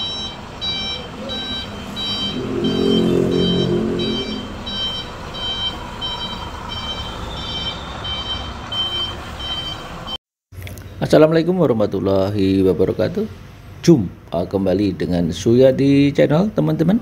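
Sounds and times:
reversing alarm beeping: 0.1 - 9.8
low engine rumble: 2.3 - 4.8.

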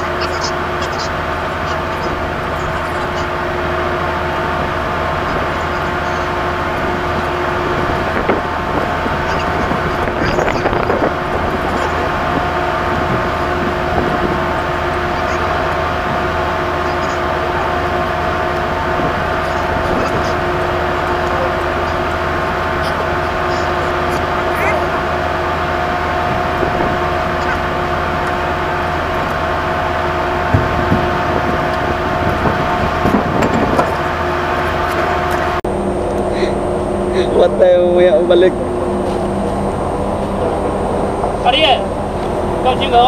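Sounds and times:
ship machinery droning: 0.0 - 43.0.

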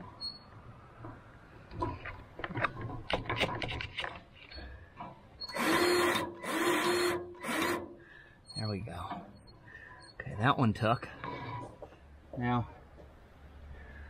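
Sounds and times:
grease gun motor bursts: 5.4 - 8.0.

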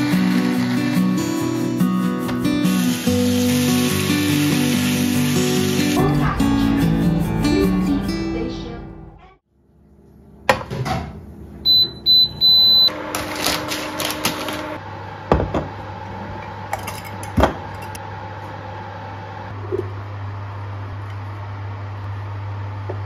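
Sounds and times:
cooling fan humming: 0.0 - 23.0
cooktop beeping: 11.7 - 13.0
kitchenware knocking on counter: 15.3 - 15.7.

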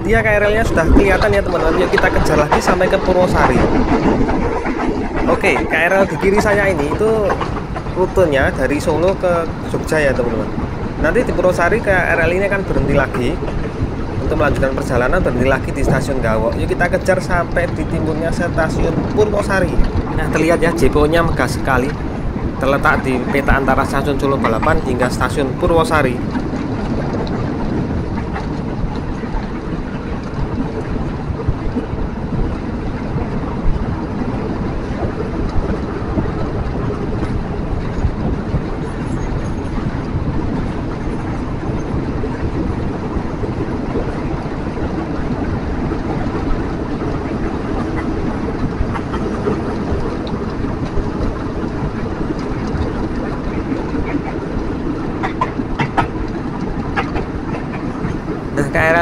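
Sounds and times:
electric train rumbling: 0.0 - 59.0.

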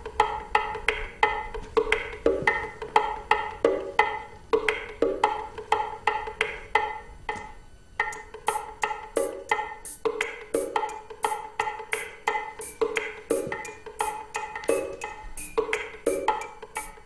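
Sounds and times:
wood-block percussion music: 8.0 - 17.0.

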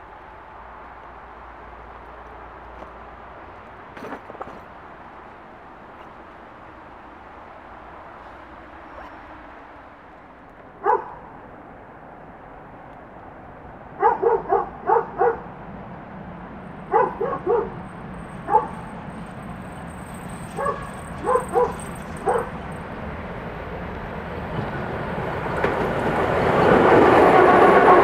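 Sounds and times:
freight train rumble: 0.0 - 28.0
dog barking: 8.9 - 9.2, 10.8 - 11.3, 14.0 - 15.5, 16.9 - 17.8, 18.4 - 18.9, 20.5 - 22.6.

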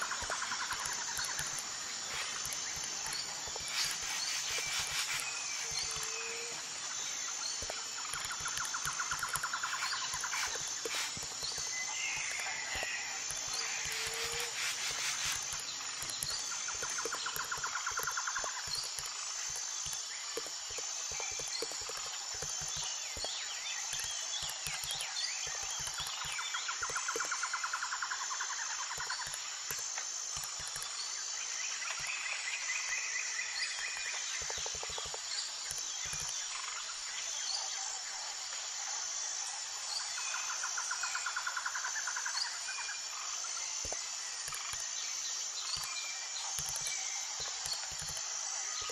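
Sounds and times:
trilling calls: 0.0 - 18.8
steady high-pitched drone: 0.0 - 29.0.

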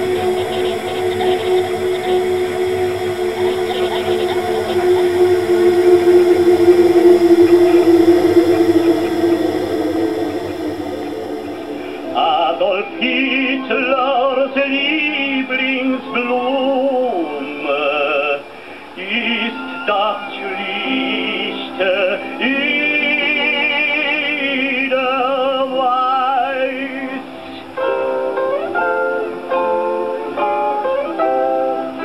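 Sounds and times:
operatic singing voice: 0.0 - 27.9.

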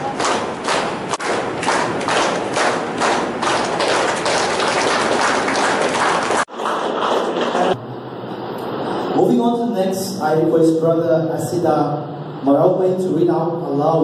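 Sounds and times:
audience clapping in rhythm: 0.0 - 7.8.

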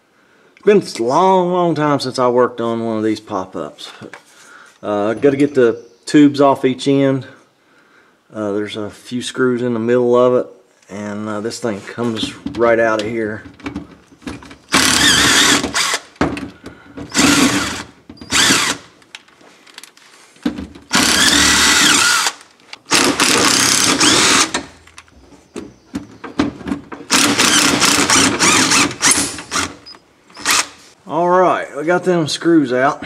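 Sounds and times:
cordless driver running: 14.7 - 16.1, 17.1 - 18.9, 20.9 - 24.7, 27.1 - 30.8.

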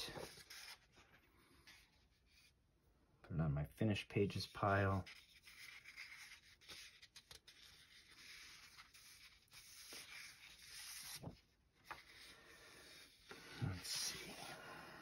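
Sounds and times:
paper pages rustling and sliding: 0.0 - 2.6, 4.3 - 15.0.

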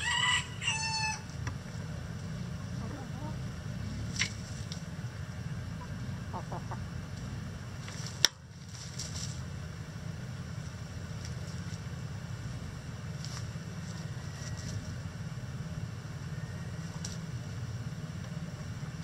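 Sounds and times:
steady low rumble: 0.0 - 19.0
chickens clucking softly: 2.7 - 3.5, 5.7 - 7.2
chickens scratching in litter: 7.1 - 9.7, 10.5 - 15.1, 16.8 - 17.4.

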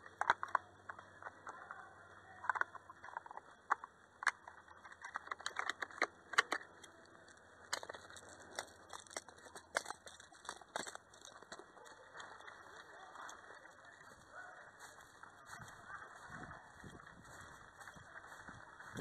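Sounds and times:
sharp clicks and crackles: 0.0 - 19.0
gear rustling and knocking: 2.5 - 14.2
footsteps crunching through dry grass: 7.9 - 19.0.

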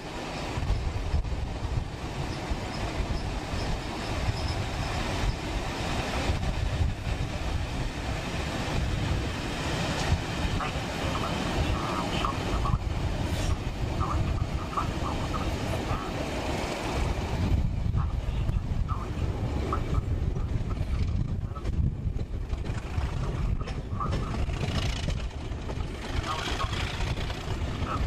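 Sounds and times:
train rumbling on track: 0.0 - 28.0
wind on microphone: 0.0 - 28.0
train wheel squeals: 0.3 - 1.2, 2.2 - 5.6.

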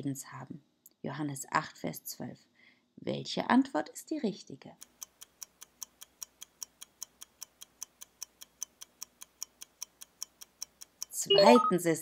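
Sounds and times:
fast clock ticking: 4.8 - 11.8.

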